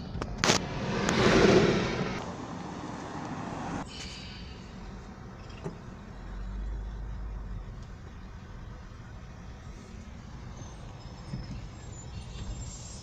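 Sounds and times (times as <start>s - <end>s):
car road and engine noise: 0.0s - 13.0s
low rumble: 0.4s - 2.7s.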